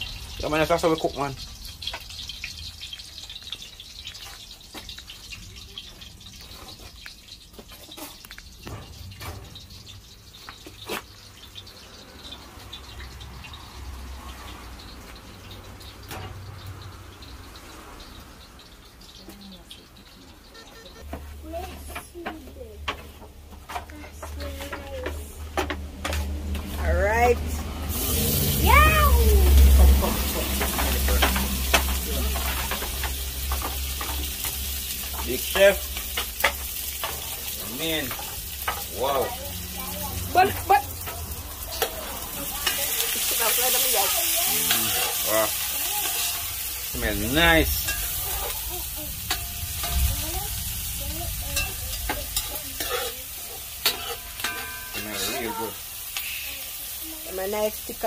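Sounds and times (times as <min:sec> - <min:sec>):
fire crackling and popping: 0:00.0 - 0:20.4, 0:21.0 - 0:58.0
food sizzling in hot oil: 0:00.0 - 0:58.0
rising and falling cry: 0:28.2 - 0:29.8
low steady rumble: 0:47.0 - 0:54.8.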